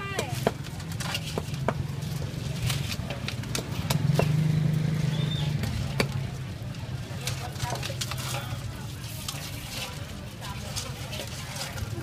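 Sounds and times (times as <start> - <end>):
sharp clicks and knocks: 2.6 - 4.4.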